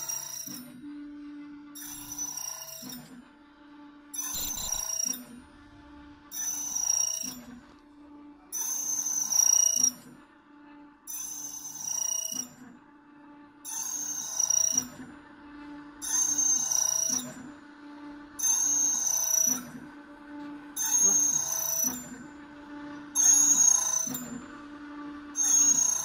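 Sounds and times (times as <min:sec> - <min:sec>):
machine motor humming: 0:00.0 - 0:10.9, 0:12.3 - 0:26.0
key cutter cutting metal: 0:01.8 - 0:03.0, 0:04.2 - 0:05.4, 0:06.3 - 0:07.5, 0:16.0 - 0:17.2, 0:18.4 - 0:19.6, 0:20.8 - 0:22.1, 0:23.2 - 0:24.3, 0:25.4 - 0:26.0.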